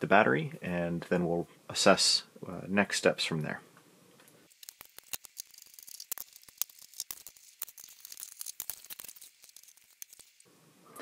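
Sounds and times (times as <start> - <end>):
screwdriver clicking and scraping: 4.5 - 10.5.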